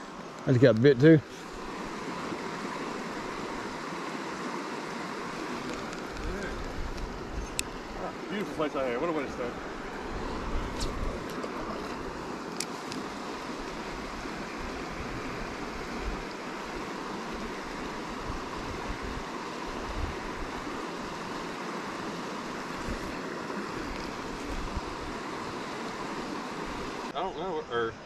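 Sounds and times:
flowing river water: 0.0s - 28.0s
wind buffeting microphone: 4.8s - 27.1s.

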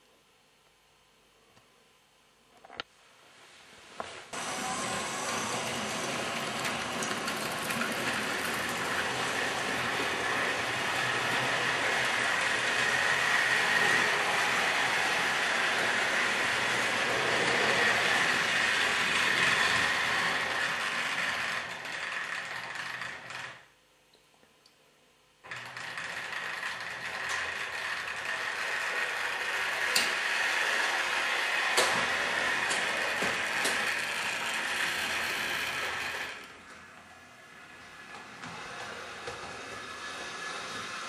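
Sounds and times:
model train motors whirring: 4.4s - 23.7s, 25.4s - 41.0s
wheels clicking over track joints: 4.9s - 23.6s, 25.5s - 36.9s.

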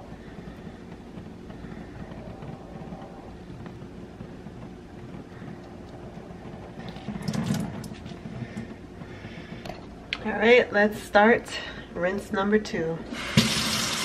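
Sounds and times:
low background hum: 0.0s - 14.0s
water splashing into sink: 7.2s - 8.0s, 13.2s - 14.0s.

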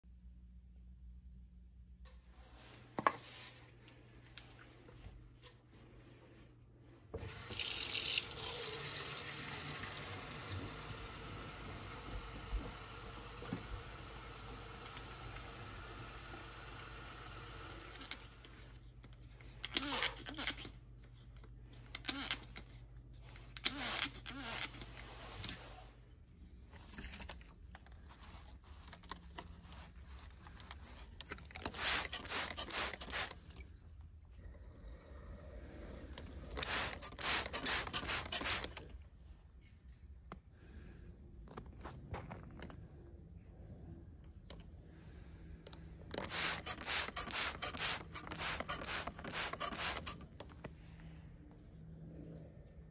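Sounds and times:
tap water filling plastic bottle: 7.2s - 18.6s.

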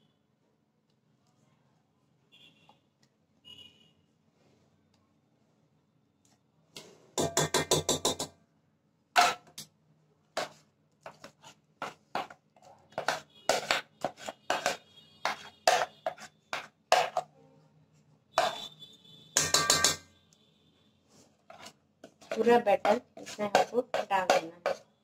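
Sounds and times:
metal spoon tapping dishes: 7.2s - 8.4s, 13.0s - 17.3s, 18.4s - 18.6s, 19.4s - 20.1s, 22.0s - 24.9s
spoon scraping bowl: 10.4s - 17.3s, 18.4s - 18.7s, 21.1s - 25.0s.

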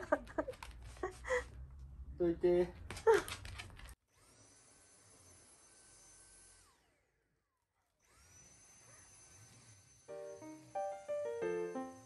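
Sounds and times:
vacuum cleaner motor whining: 8.0s - 12.0s.

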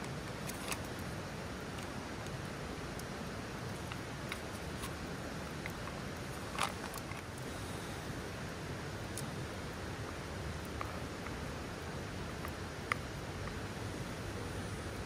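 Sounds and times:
campfire hissing and crackling: 0.0s - 15.0s.

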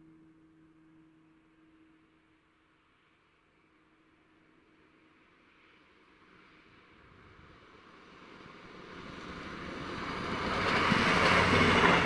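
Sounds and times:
low steady hum: 0.0s - 5.3s
train passing at speed: 5.2s - 12.0s.

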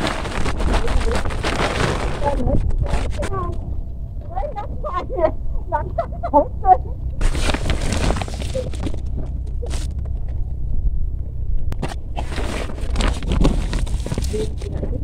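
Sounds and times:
plastic sack rustling: 0.0s - 3.6s, 7.2s - 10.2s, 11.8s - 15.0s
low steady rumble: 0.0s - 15.0s.

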